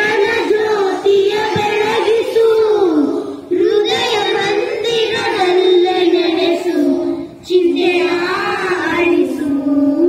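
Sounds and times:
children singing prayer song: 0.0s - 10.0s.

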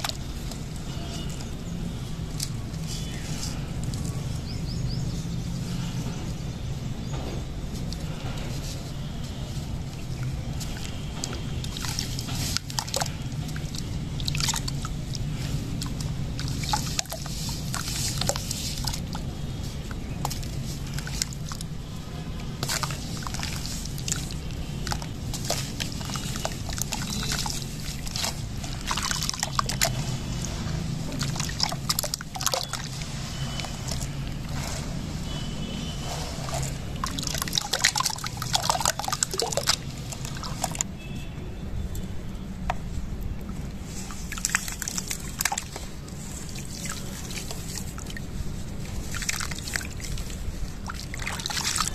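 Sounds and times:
water splashing and sloshing: 0.0s - 41.3s, 42.0s - 51.9s.

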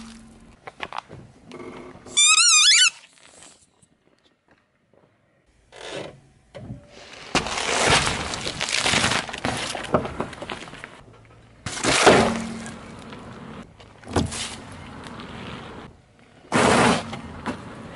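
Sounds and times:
tyre crushing objects: 7.0s - 11.0s, 11.6s - 13.4s.

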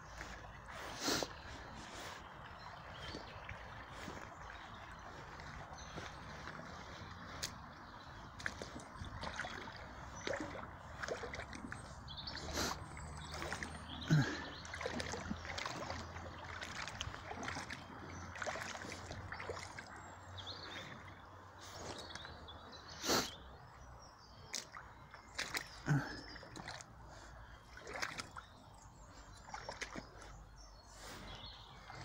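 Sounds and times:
running water: 0.0s - 21.9s
boots splashing through stream: 0.0s - 32.0s.

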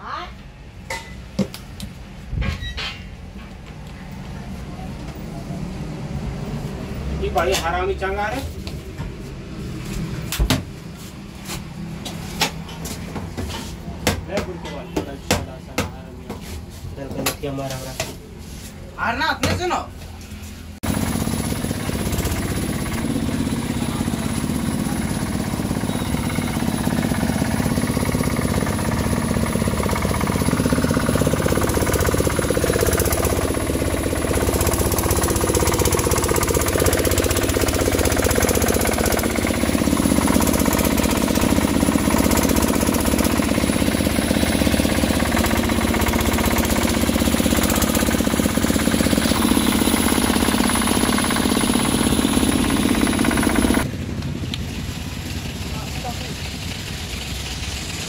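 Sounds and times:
machine rattling rapidly: 20.8s - 53.9s.

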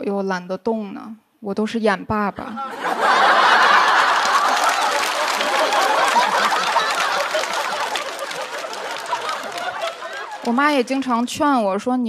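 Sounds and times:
audience laughing: 2.5s - 11.3s.

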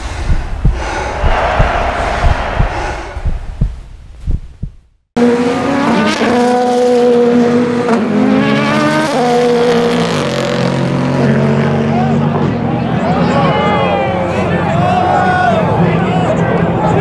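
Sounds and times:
low thumps: 0.0s - 5.0s
racing car engines: 5.2s - 17.0s.

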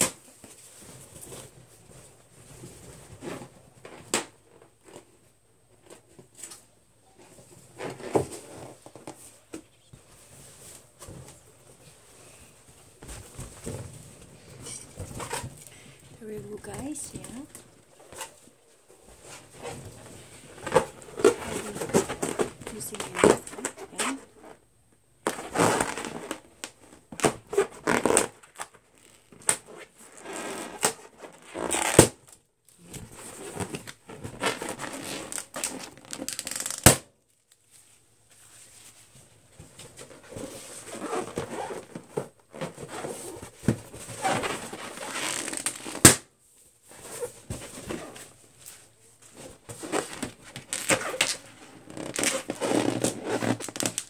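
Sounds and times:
fingernails scratching balloons: 49.7s - 54.0s.

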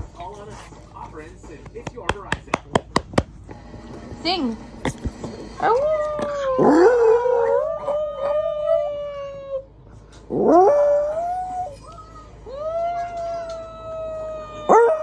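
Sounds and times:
small dog howling: 5.6s - 9.7s, 12.5s - 15.0s.

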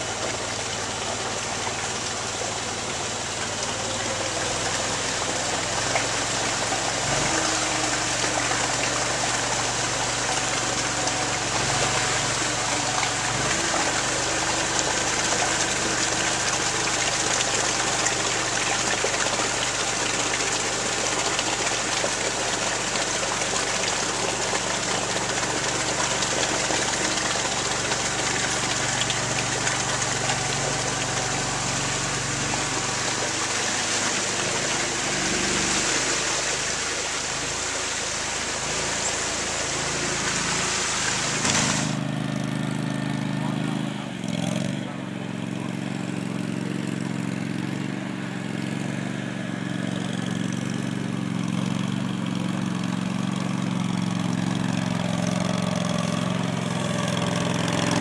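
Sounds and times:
small engine running under load: 0.0s - 58.0s
water rushing and splashing: 0.0s - 58.0s.

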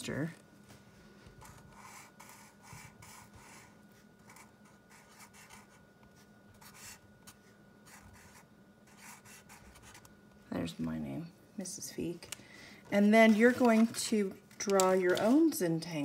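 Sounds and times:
marker writing on paper: 1.4s - 5.8s.

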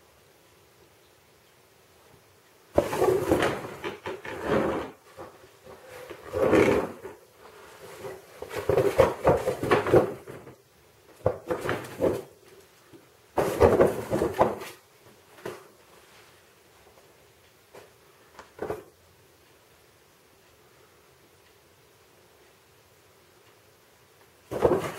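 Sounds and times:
cardboard box scraping on tiles: 2.8s - 10.4s, 13.4s - 14.7s.

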